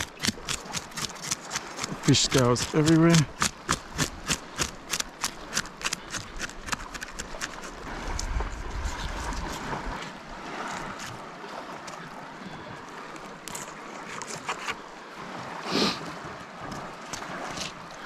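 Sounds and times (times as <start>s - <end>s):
rasp: 0.0s - 7.8s
waves washing: 0.0s - 18.0s
wind buffeting microphone: 7.5s - 12.3s.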